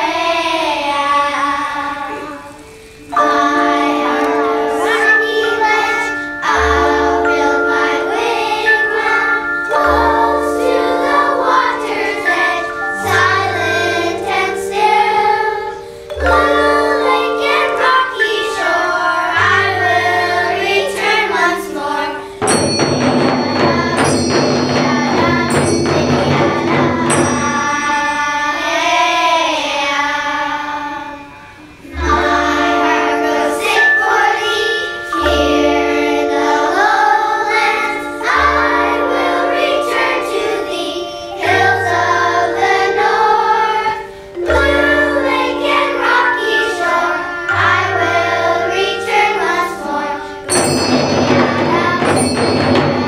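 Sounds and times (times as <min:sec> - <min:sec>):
girls choir singing: 0:00.0 - 0:53.0
held low instrumental notes: 0:01.4 - 0:28.5, 0:31.0 - 0:53.0
rattling hand percussion: 0:02.1 - 0:29.0, 0:43.8 - 0:53.0.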